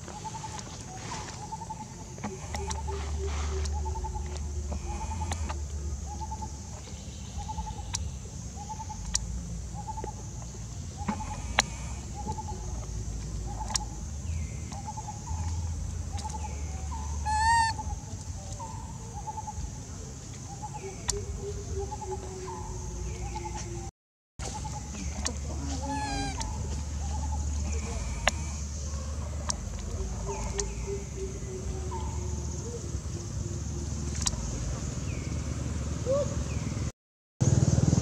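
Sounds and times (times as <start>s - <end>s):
bird hooting: 0.0s - 9.0s, 11.0s - 23.8s, 24.5s - 34.0s, 36.0s - 36.7s
wavering bird call: 0.0s - 9.0s, 14.7s - 19.5s, 24.5s - 33.4s
insect hiss: 0.0s - 36.9s.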